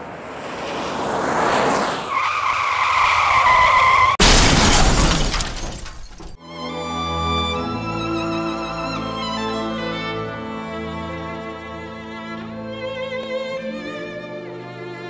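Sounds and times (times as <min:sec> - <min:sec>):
car crash: 0:00.3 - 0:06.4
tyres screeching in a skid: 0:00.9 - 0:06.4.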